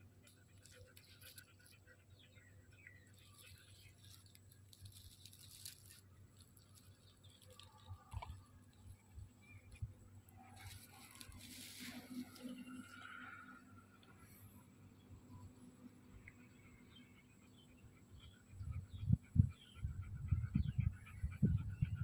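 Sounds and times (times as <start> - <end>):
dry leaves crackling: 3.3 - 7.9, 10.6 - 12.5.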